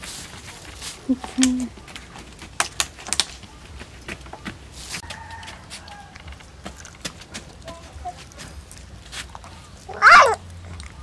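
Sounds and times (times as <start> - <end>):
plastic bottle clicking and crackling: 2.5 - 3.5.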